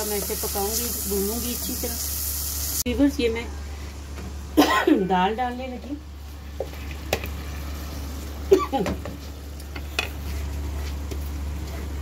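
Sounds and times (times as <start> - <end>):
lentils sizzling in hot oil: 0.0 - 2.9.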